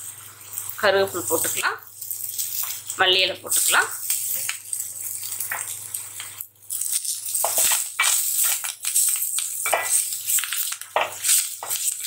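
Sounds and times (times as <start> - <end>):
scraping herbs off steel plate: 7.3 - 12.0.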